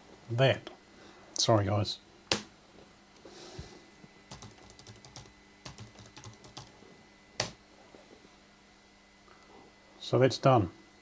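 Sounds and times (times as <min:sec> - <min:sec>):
keyboard typing: 0:04.3 - 0:06.7.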